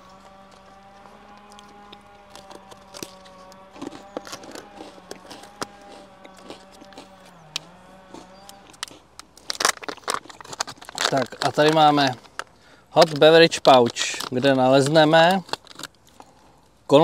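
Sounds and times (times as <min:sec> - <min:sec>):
plastic pouches rustling: 0:00.0 - 0:07.4, 0:08.0 - 0:16.6
steady hum: 0:00.0 - 0:13.0.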